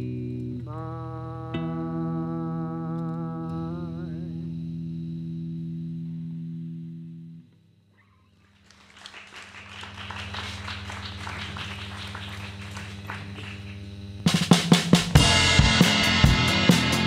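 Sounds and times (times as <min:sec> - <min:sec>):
band playing with heavy drum hits: 0:14.2 - 0:17.0
drum roll: 0:14.2 - 0:17.0.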